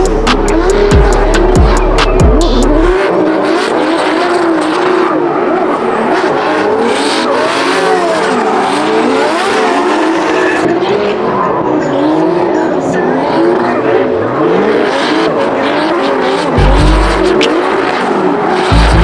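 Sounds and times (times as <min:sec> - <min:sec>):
bass-heavy electronic music: 0:00.0 - 0:04.5, 0:15.8 - 0:19.0
car engines revving: 0:00.0 - 0:19.0.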